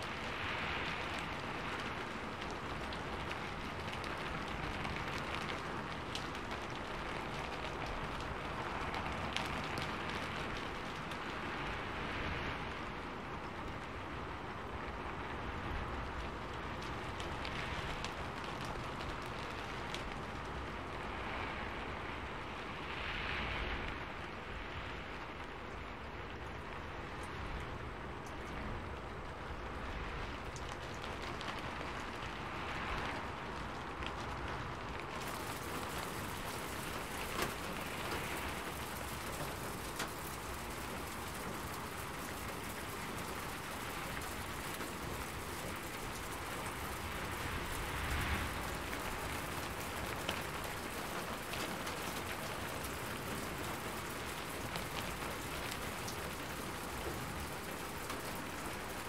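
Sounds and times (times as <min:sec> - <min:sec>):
rain drop ticks: 0:00.0 - 0:23.0, 0:23.6 - 0:59.0
steady rain falling: 0:00.0 - 0:59.0.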